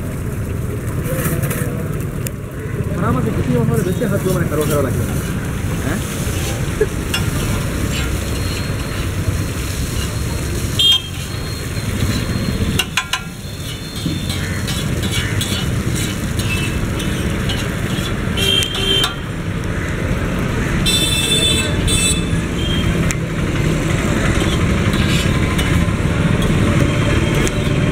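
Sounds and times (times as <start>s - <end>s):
street traffic: 0.0s - 27.9s
vehicle horns tooting: 10.7s - 14.5s, 18.3s - 19.3s, 20.8s - 23.0s.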